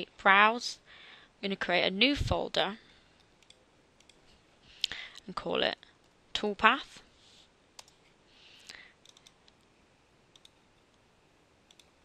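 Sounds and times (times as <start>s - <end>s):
computer mouse clicks: 3.2s - 4.2s, 7.8s - 8.0s, 9.0s - 9.7s, 10.3s - 11.0s, 11.7s - 12.0s.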